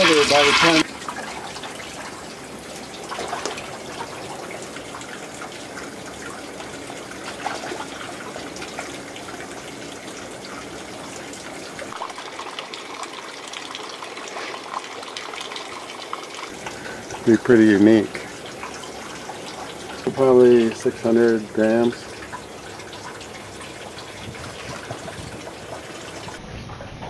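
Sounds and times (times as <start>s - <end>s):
water trickling into a tank: 0.0s - 27.0s.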